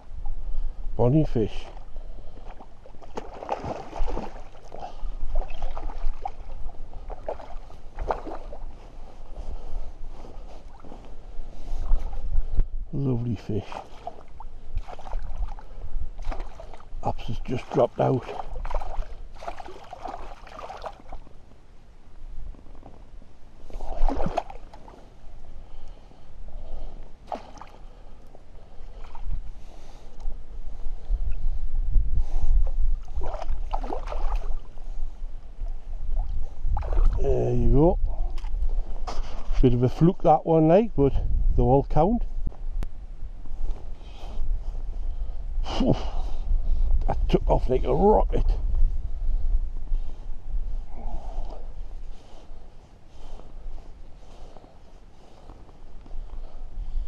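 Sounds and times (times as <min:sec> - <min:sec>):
wind rumbling on microphone: 0:00.0 - 0:57.0
fish splashing in water: 0:03.0 - 0:08.6, 0:13.8 - 0:16.9, 0:18.2 - 0:21.2, 0:23.7 - 0:24.8, 0:33.2 - 0:34.6
water gurgling: 0:13.6 - 0:21.2
fish splashing at water surface: 0:18.2 - 0:21.2.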